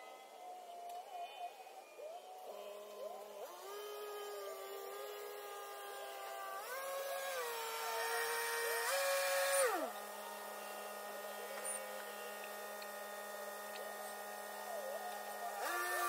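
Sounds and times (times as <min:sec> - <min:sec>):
motor humming: 0:02.0 - 0:16.0.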